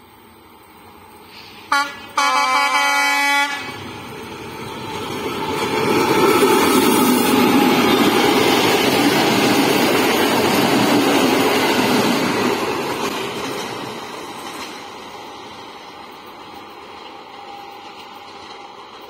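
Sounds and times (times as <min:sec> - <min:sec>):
diesel locomotive engine: 0:00.0 - 0:19.0
train coaches rolling past: 0:00.0 - 0:19.0.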